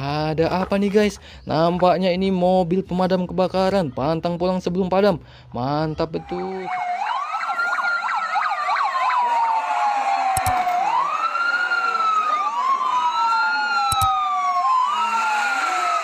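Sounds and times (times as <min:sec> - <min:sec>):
emergency vehicle siren wailing: 0:06.1 - 0:16.0
warbling siren tone: 0:06.2 - 0:16.0
sharp clicks: 0:10.3 - 0:10.8, 0:13.8 - 0:14.2.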